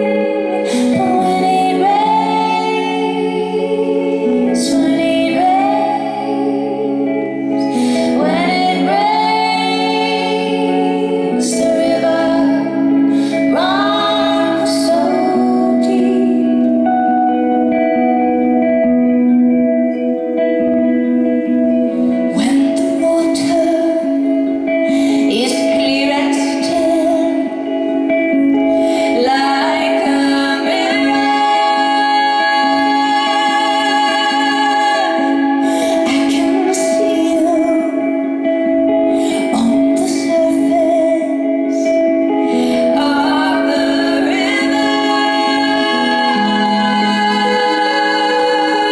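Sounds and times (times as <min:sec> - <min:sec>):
women singing together: 0:00.0 - 0:16.7, 0:29.1 - 0:38.1, 0:42.8 - 0:48.9
electric guitar chords: 0:00.0 - 0:48.9
live band accompaniment: 0:00.0 - 0:48.9.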